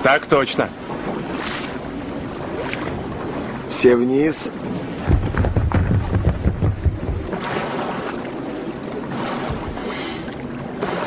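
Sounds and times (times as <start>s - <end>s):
sea waves rushing: 0.0s - 11.0s
wind buffeting: 0.8s - 10.8s.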